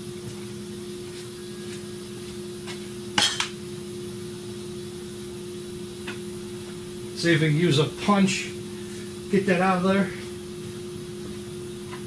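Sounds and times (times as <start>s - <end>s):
shop hum: 0.0s - 12.0s.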